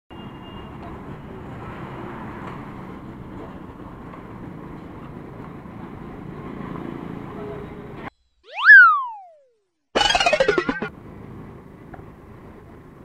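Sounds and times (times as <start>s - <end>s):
road traffic rumble: 0.3s - 8.1s, 10.9s - 13.0s.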